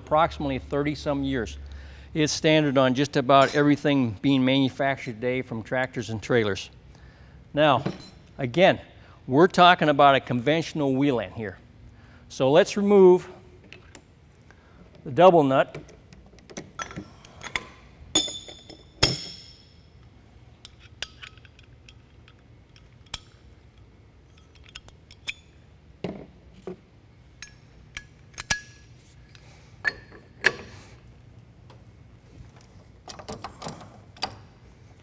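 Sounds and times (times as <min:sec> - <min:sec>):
ringing metal tool clanks: 0:03.4 - 0:03.8, 0:18.1 - 0:19.9.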